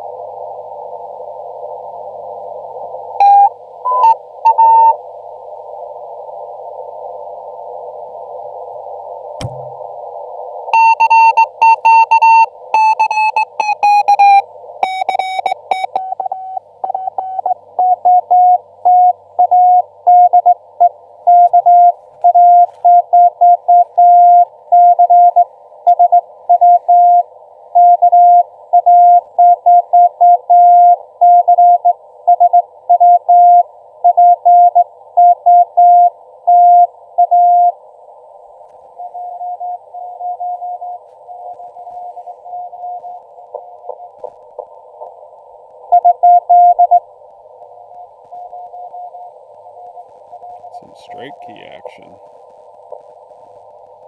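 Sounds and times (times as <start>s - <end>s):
faint morse code station: 3.2s - 5.0s, 10.8s - 20.6s, 21.3s - 27.2s, 27.8s - 37.7s, 45.9s - 47.0s, 48.3s - 52.1s
morse code tone: 10.8s - 20.6s, 21.3s - 27.2s, 46.0s - 47.0s
radio band noise hiss: 38.0s - 54.0s.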